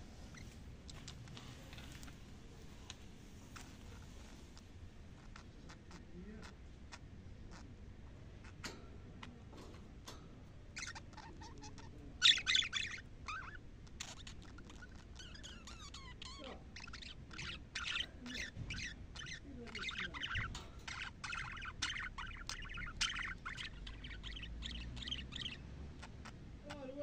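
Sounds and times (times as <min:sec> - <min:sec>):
budgerigars chattering: 0:03.4 - 0:27.0
soft ticks: 0:08.6 - 0:11.0, 0:20.3 - 0:25.6.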